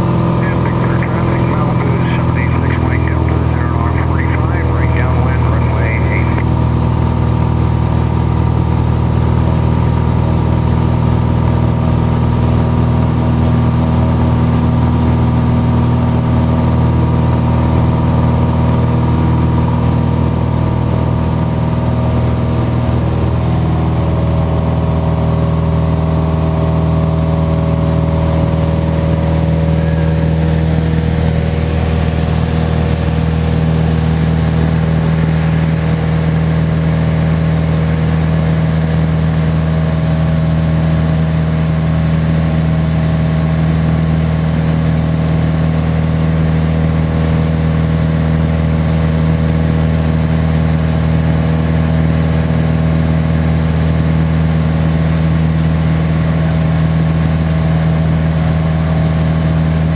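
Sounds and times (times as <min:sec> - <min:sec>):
aircraft engine and propeller droning: 0:00.0 - 0:47.0.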